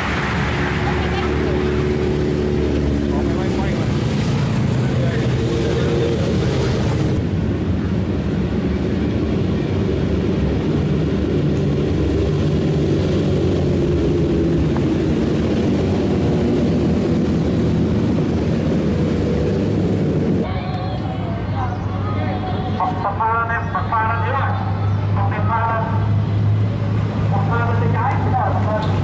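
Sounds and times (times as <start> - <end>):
motorcycles riding past slowly: 0.0 - 7.2.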